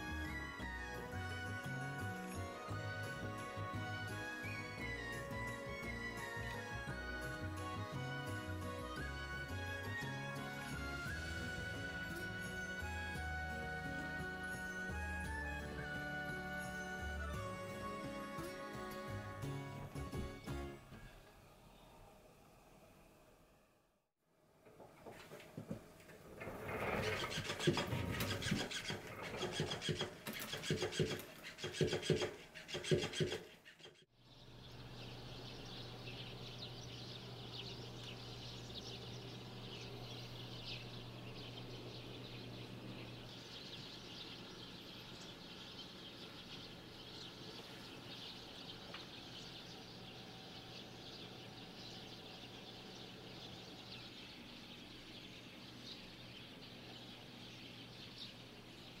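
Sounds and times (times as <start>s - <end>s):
small birds chirping: 26.4s - 59.0s
low steady hum: 34.2s - 59.0s.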